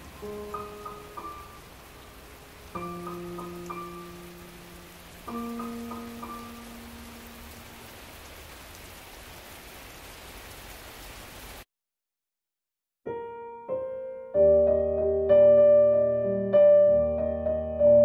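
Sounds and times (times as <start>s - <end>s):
piano music: 0.0s - 7.9s, 13.1s - 18.0s
rain hissing: 0.0s - 11.7s.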